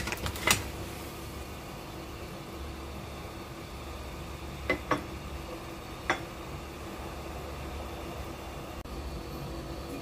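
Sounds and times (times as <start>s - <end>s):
pot of water humming and hissing: 0.0s - 10.0s.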